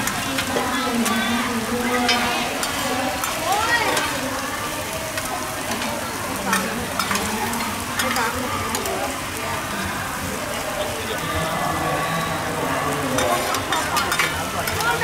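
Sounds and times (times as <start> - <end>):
food sizzling on griddle: 0.0 - 15.0
metal spatulas scraping pan: 13.1 - 14.8.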